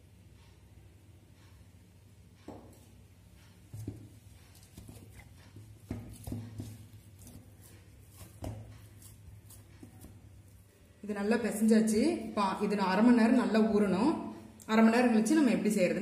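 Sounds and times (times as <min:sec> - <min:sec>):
dough squishing: 0:02.5 - 0:12.7.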